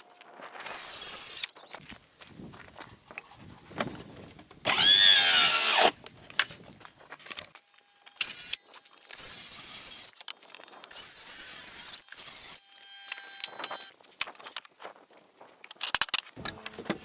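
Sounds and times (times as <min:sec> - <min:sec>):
circular saw cutting plywood: 0:04.7 - 0:06.0.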